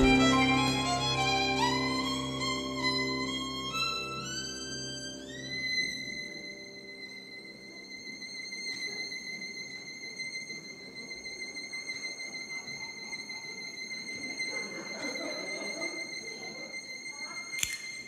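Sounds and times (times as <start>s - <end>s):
audience crowd noise: 0.0s - 6.1s.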